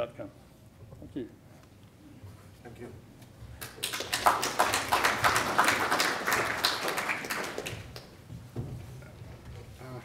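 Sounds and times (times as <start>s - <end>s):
audience applauding: 3.6s - 8.2s.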